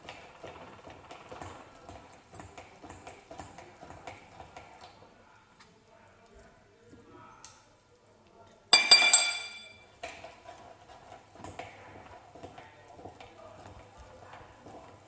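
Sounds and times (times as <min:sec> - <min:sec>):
porcelain bowl clinking: 0:08.7 - 0:09.9.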